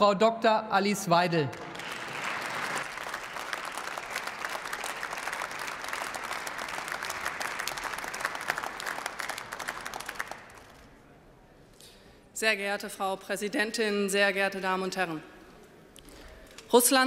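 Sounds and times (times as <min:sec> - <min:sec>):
crowd applauding: 0:01.5 - 0:10.9.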